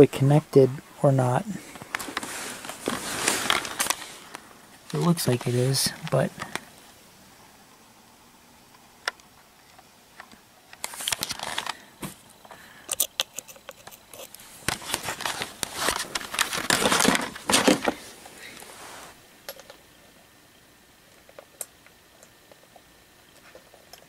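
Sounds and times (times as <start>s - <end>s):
fabric rustling: 1.5s - 6.0s, 14.4s - 19.2s.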